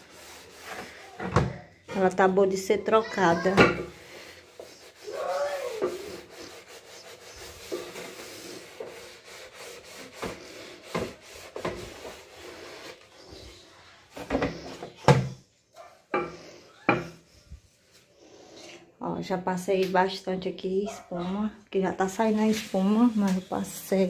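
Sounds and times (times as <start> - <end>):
sponge scrubbing a surface: 0.0 - 1.2, 3.1 - 13.9, 22.1 - 24.0.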